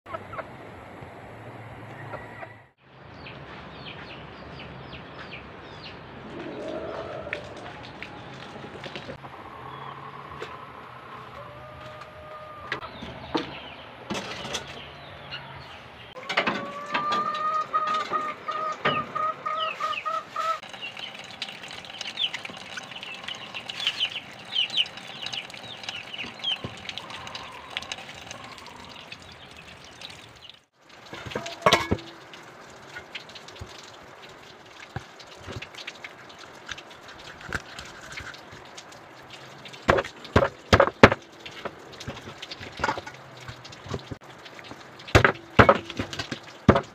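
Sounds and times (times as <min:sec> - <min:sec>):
chicken calling: 0:06.2 - 0:12.9, 0:16.2 - 0:20.6, 0:26.2 - 0:29.1.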